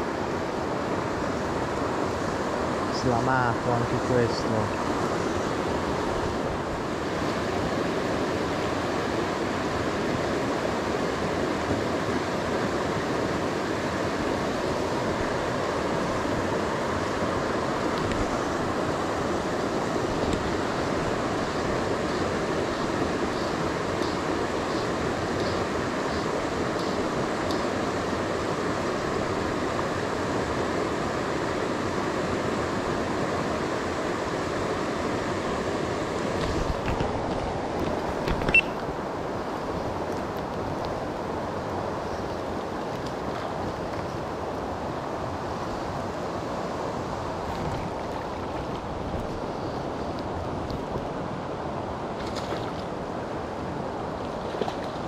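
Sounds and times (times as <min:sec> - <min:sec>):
river water rushing: 0:00.0 - 0:55.0
faint high ticks: 0:26.7 - 0:27.7.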